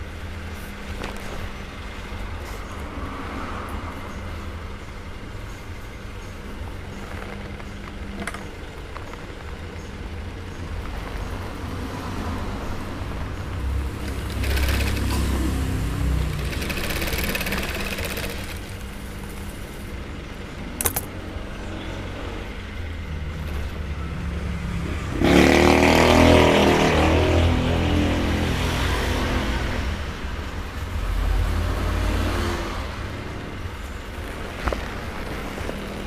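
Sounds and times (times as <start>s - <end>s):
sewing machine motor humming: 13.8s - 19.0s
sewing machine stitching leather: 13.9s - 15.5s, 16.2s - 18.8s
sharp click: 20.8s - 21.1s.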